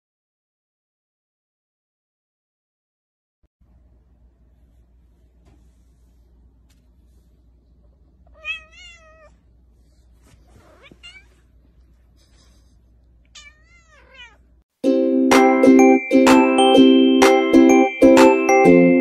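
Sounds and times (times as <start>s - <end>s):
kitten meowing: 8.3s - 9.4s, 10.8s - 11.4s, 13.4s - 14.4s
loud background music: 14.9s - 19.0s.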